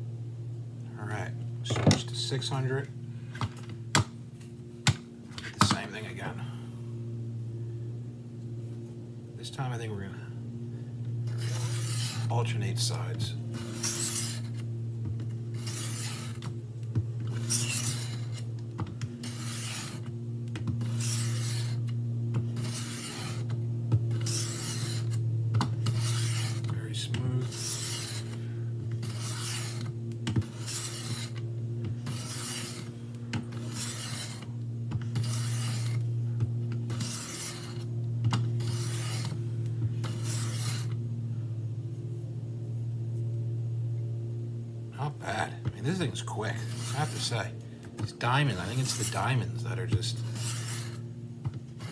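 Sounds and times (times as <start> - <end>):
knife rasping on sharpening plate: 17.3 - 18.4, 27.4 - 28.4, 29.0 - 29.9, 30.5 - 31.4, 33.6 - 34.5, 50.2 - 51.0.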